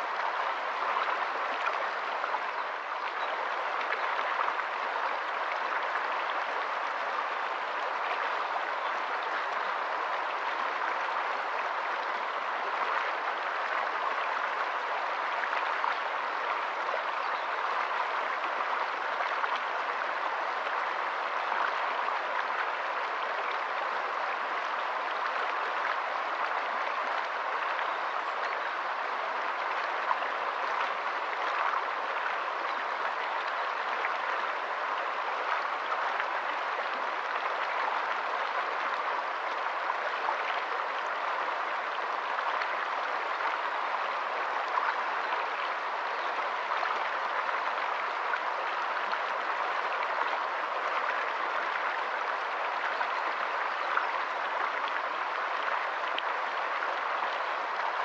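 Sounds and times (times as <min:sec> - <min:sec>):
stream rushing over stones: 0:00.0 - 0:58.0
water splashes and drips: 0:00.0 - 0:58.0.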